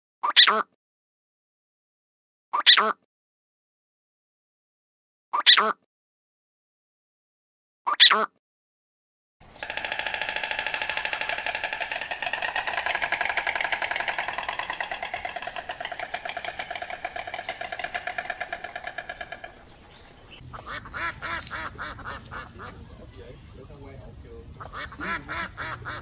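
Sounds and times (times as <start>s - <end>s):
animal calling with quack-like calls: 0.2s - 0.8s, 2.6s - 3.0s, 5.4s - 5.8s, 7.9s - 8.4s, 9.5s - 23.0s, 24.6s - 26.0s.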